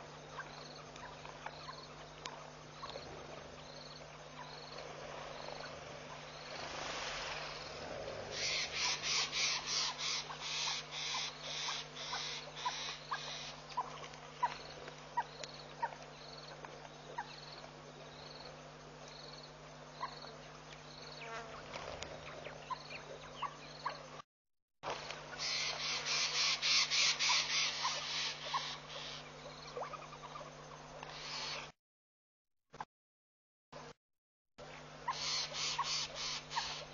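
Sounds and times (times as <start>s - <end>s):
low hum: 0.0s - 19.8s
pulsing insect buzz: 2.8s - 13.6s, 20.2s - 22.2s.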